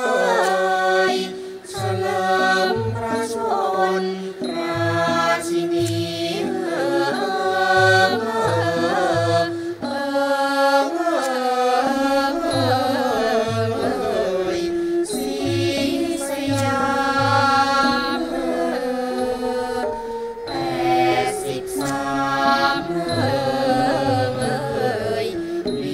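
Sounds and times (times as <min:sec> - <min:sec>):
women singing together: 0:00.0 - 0:25.9
classical ensemble playing: 0:11.9 - 0:25.9.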